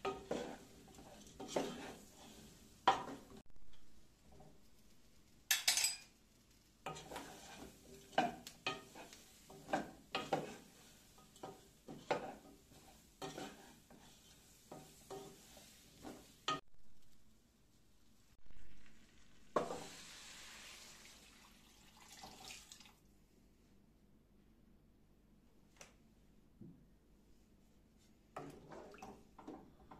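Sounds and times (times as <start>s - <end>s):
wooden spoon stirring in pot: 0.0s - 5.1s, 6.8s - 17.1s, 18.4s - 20.6s, 28.0s - 29.9s.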